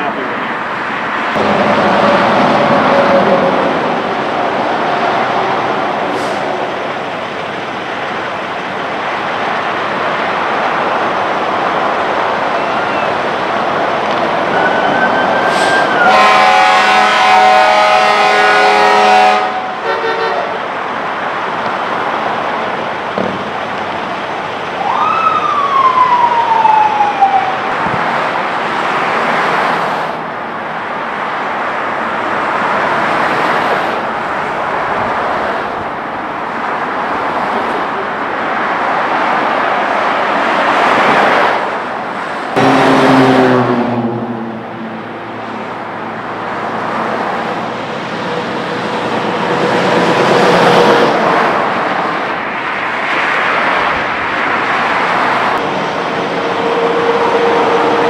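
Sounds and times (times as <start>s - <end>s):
freeway traffic: 0.0s - 58.0s
siren winding down: 14.5s - 16.1s, 24.8s - 28.0s.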